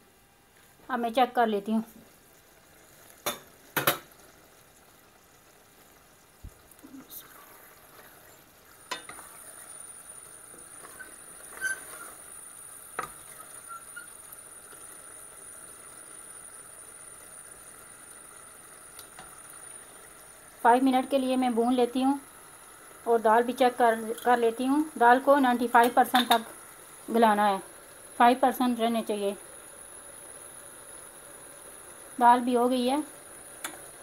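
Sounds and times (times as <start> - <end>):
vegetables sizzling: 0.0 - 34.0
spatula scraping steel pot: 10.8 - 12.2, 13.0 - 14.1.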